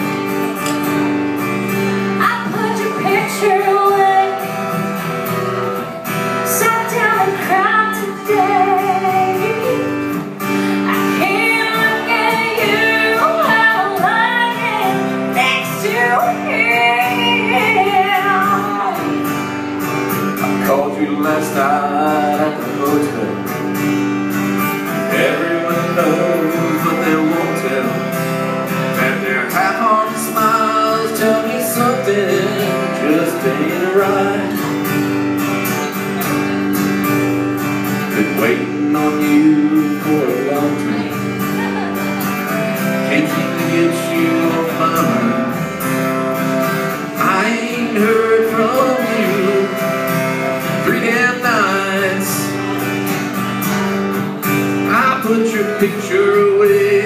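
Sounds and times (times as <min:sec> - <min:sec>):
acoustic guitars strummed: 0:00.0 - 0:57.0
person singing: 0:02.1 - 0:04.5, 0:06.4 - 0:19.2, 0:25.0 - 0:28.2, 0:29.0 - 0:34.8, 0:38.0 - 0:46.3, 0:46.9 - 0:52.9, 0:54.8 - 0:57.0.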